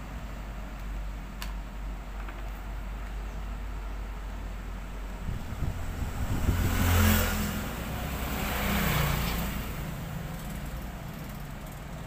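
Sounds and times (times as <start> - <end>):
motor vehicle passing: 5.2 - 10.6.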